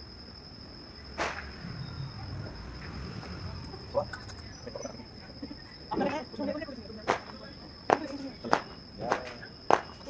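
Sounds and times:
crickets trilling: 0.0s - 10.0s.

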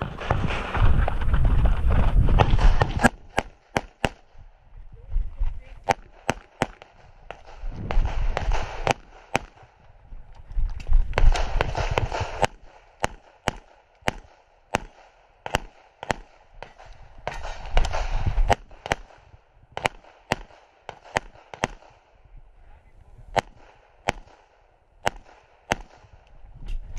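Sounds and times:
pistol shots: 2.4s - 4.4s, 5.8s - 9.8s, 11.1s - 22.1s, 23.3s - 26.2s.

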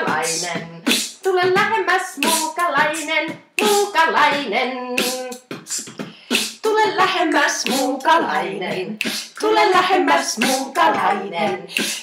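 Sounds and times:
woman vocalising wordless tones: 0.0s - 1.2s
beatbox vocal hits: 0.0s - 12.0s.

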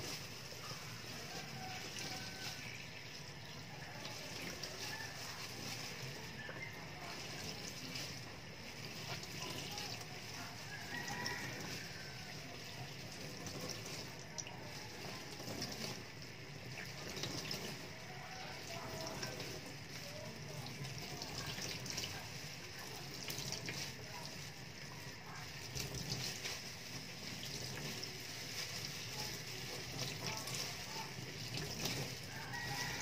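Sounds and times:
tap water running into metal sink: 1.3s - 33.0s.

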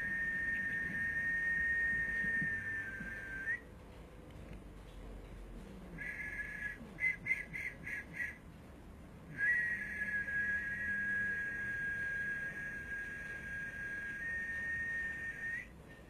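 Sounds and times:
high whistle-like tone pulses: 0.0s - 3.6s, 6.0s - 8.4s, 9.3s - 15.8s.

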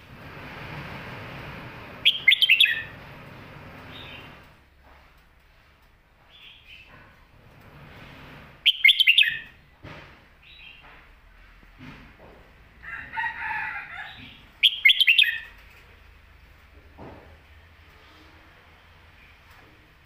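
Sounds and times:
bird singing sharp notes: 2.0s - 2.9s, 8.7s - 9.5s
soft bird warbling: 2.0s - 2.9s.

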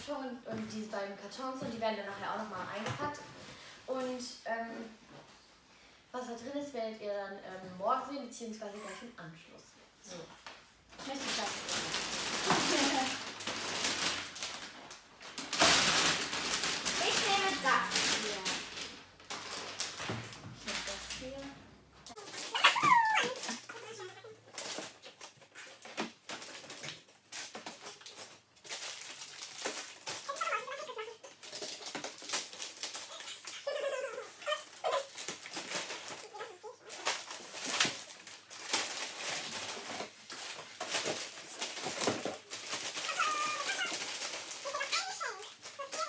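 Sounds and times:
wrapping paper crinkling: 10.9s - 21.5s, 22.1s - 46.0s.

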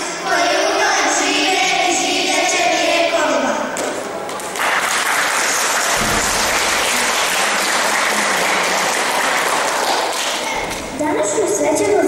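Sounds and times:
audience applauding: 4.3s - 10.8s.

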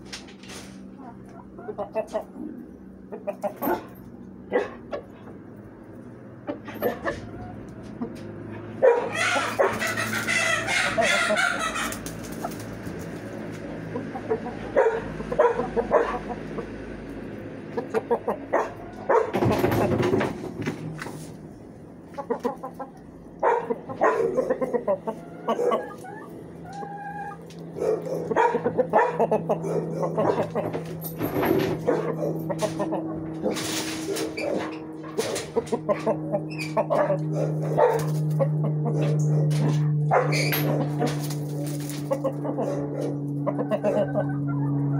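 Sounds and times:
chickens clucking: 0.1s - 44.9s
loud drawn-out chicken calls: 6.4s - 21.3s, 23.6s - 39.0s, 39.6s - 44.9s.

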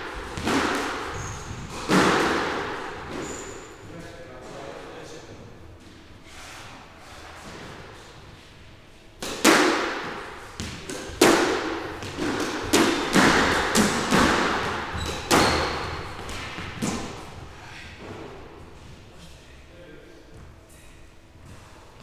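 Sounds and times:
squash ball hitting rackets and walls: 0.0s - 4.6s, 7.1s - 8.6s, 9.2s - 19.0s.

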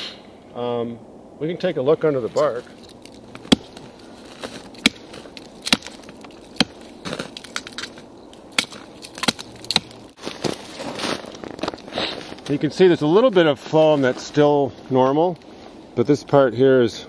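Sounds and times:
axe chopping bark and wood: 3.0s - 10.2s.

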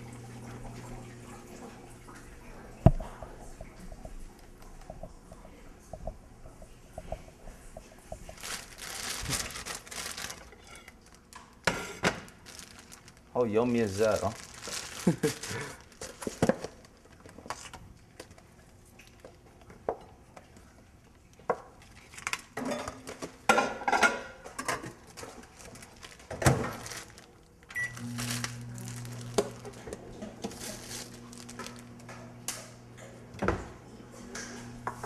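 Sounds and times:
microwave oven humming: 0.0s - 14.1s, 26.3s - 35.0s
dishes clattering on counter: 22.6s - 25.0s
short beep: 27.7s - 28.0s.

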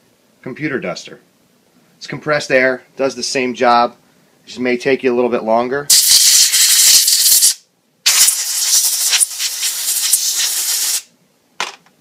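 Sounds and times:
compressed air hissing: 5.9s - 11.1s.

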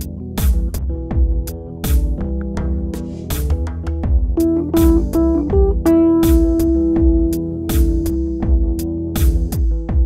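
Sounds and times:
steady drum beat: 0.4s - 10.0s
held pitched notes: 4.4s - 9.5s.

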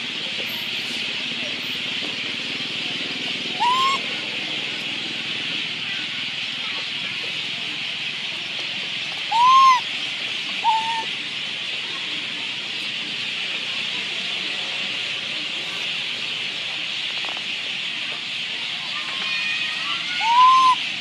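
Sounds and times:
macaque coo calls: 3.5s - 4.1s, 9.2s - 9.9s, 10.6s - 11.1s, 20.2s - 20.8s.

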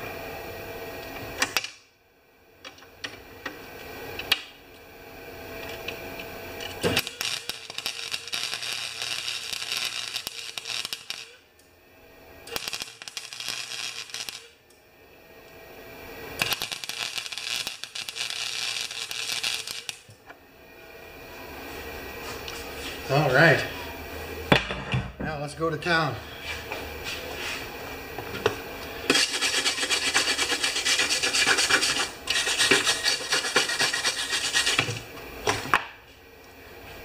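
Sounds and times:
welder arc crackling: 6.6s - 11.4s, 12.4s - 14.7s, 16.2s - 20.2s, 28.8s - 35.6s.

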